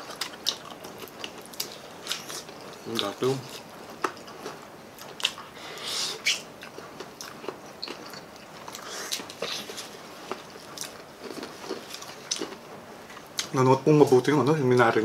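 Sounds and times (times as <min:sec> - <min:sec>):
wet chewing: 0:06.2 - 0:12.6.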